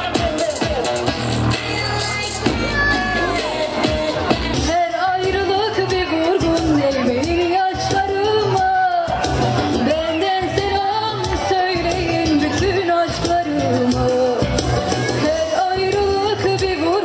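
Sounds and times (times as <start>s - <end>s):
amplified backing music: 0.0s - 17.0s
girl singing into a microphone: 4.6s - 9.2s, 9.8s - 17.0s.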